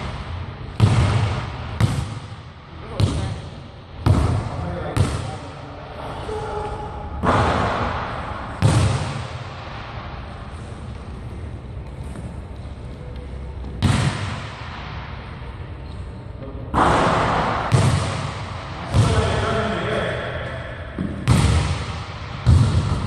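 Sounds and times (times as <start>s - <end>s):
basketball thudding echoing: 0.0s - 5.5s, 7.2s - 10.2s, 13.7s - 15.2s, 16.7s - 19.8s, 20.8s - 23.0s.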